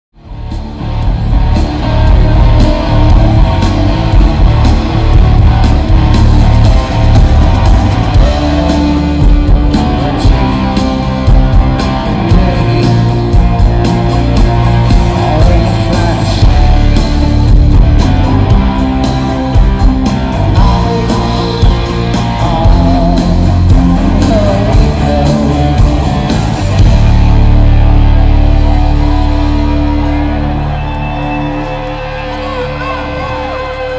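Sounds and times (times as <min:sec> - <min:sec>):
bass guitar: 0:00.1 - 0:33.9
drum kit: 0:00.2 - 0:33.9
electric guitars: 0:00.2 - 0:33.9.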